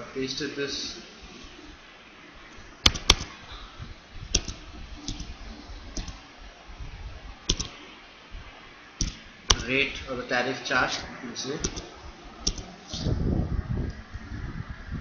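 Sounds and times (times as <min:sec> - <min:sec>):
keyboard and mouse clicks: 0:02.8 - 0:03.3, 0:04.3 - 0:05.4, 0:06.0 - 0:06.2, 0:07.5 - 0:07.8, 0:09.0 - 0:09.7, 0:11.6 - 0:13.1.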